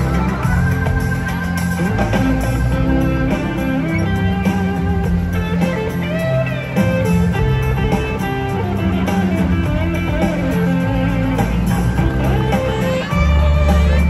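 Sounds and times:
background guitar music: 0.0s - 14.0s.

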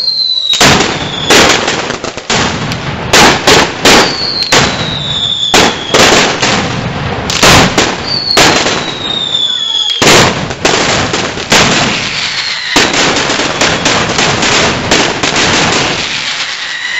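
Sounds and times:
firecrackers banging: 0.0s - 16.9s
high falling whistle: 8.0s - 10.0s, 12.1s - 12.9s, 16.2s - 16.9s.

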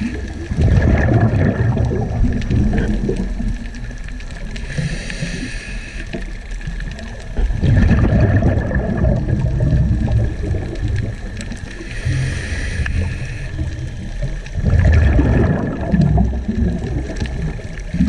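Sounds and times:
rush of bubbling: 0.0s - 18.0s
underwater rumble of moving water: 0.0s - 18.0s.

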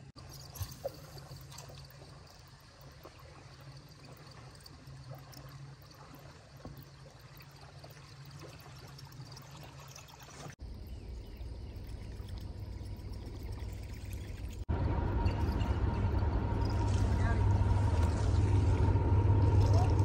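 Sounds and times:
water trickling: 0.0s - 20.0s
low hum: 10.6s - 20.0s
steady low rumble: 10.6s - 20.0s.

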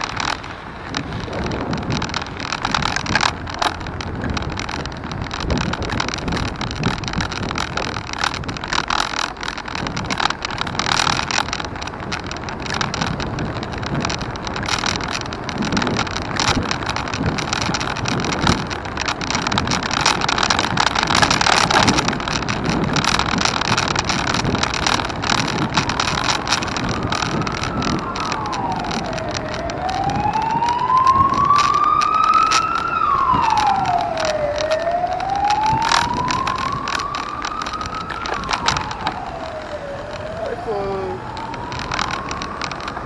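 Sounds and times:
steady rushing noise: 0.0s - 43.0s
emergency siren wailing: 14.9s - 43.0s.

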